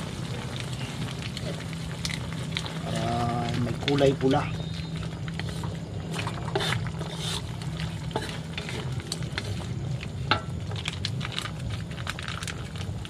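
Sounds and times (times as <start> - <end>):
steady low hum: 0.0 - 13.0
spoon scraping a pan: 5.4 - 9.5.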